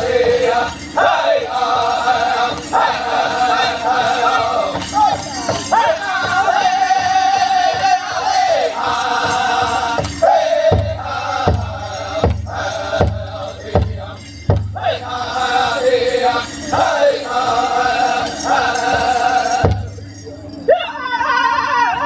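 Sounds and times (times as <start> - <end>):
group chanting high-pitched: 0.0 - 19.9
heavy big drum strikes: 4.7 - 15.3, 18.9 - 20.0.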